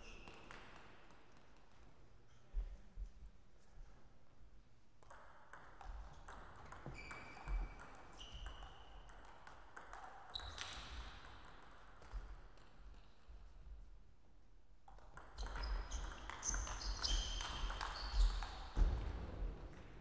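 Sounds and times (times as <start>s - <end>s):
table tennis ball bouncing: 0.1s - 2.0s, 5.0s - 13.3s, 14.8s - 20.0s.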